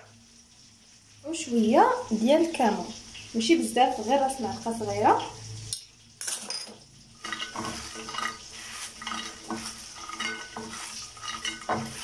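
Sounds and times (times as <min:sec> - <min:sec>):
fries rustling: 0:07.0 - 0:12.0.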